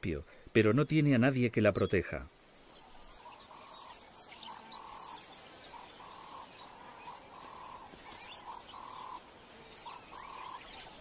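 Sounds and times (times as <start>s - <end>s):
high bird chirps: 2.6s - 11.0s.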